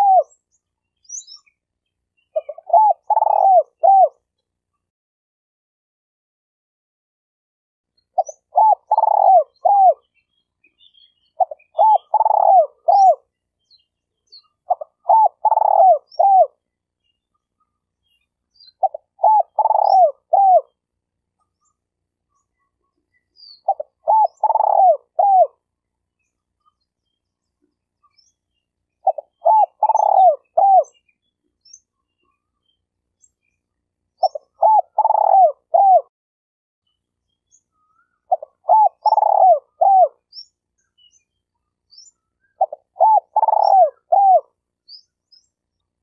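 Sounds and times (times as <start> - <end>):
dove cooing: 0.0 - 0.4, 2.4 - 4.2, 8.2 - 10.1, 11.4 - 13.2, 14.7 - 16.6, 18.7 - 20.8, 23.5 - 25.6, 29.0 - 31.0, 34.2 - 36.1, 38.3 - 40.2, 42.6 - 44.5
faint high bird chirps: 0.0 - 4.9, 7.9 - 36.1, 36.8 - 46.0.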